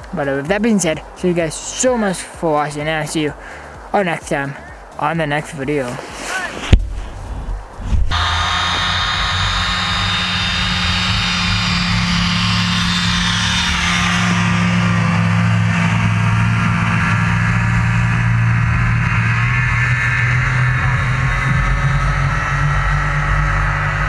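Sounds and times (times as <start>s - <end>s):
off-road vehicle engine running: 7.1s - 24.0s.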